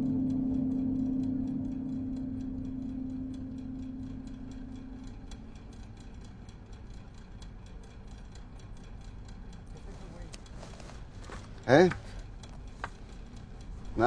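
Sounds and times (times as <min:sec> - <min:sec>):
low held tone: 0:00.0 - 0:06.0
rapid ticking: 0:00.0 - 0:14.0.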